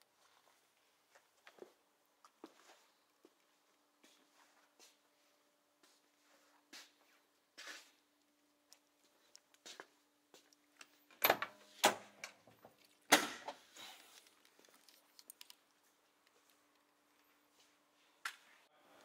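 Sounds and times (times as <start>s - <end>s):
faint clicks and rattles: 13.9s - 17.4s.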